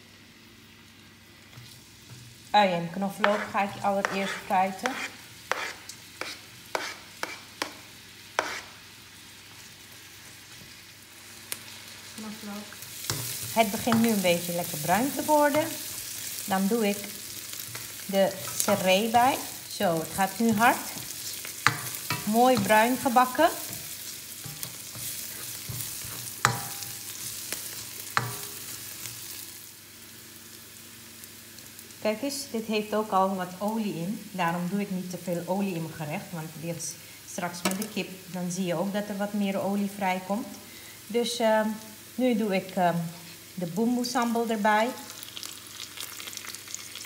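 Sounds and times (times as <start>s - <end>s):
onion and garlic sizzling in oil: 0.0s - 47.0s
spatula stirring in a wok: 1.5s - 8.8s, 12.7s - 29.4s
utensils knocking against wok: 24.4s - 27.0s, 28.2s - 28.6s.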